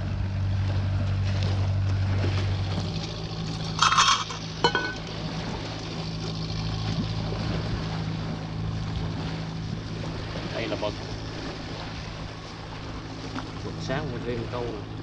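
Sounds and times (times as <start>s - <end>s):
boat engine humming: 0.0s - 15.0s
sharp metallic clink: 3.8s - 5.0s.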